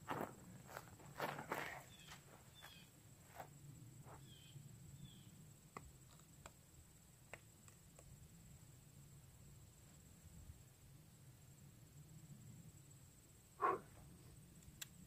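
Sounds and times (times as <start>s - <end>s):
rifle and clothing clicks and rustles: 0.0s - 3.5s
footsteps on dry grassy dirt: 0.0s - 4.2s
shuffle of kneeling: 0.0s - 4.2s.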